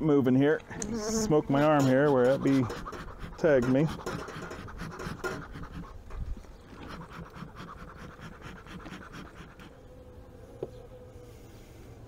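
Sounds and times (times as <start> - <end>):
bee smoker bellows puffing: 0.7 - 9.9
honeybees buzzing: 0.7 - 12.0.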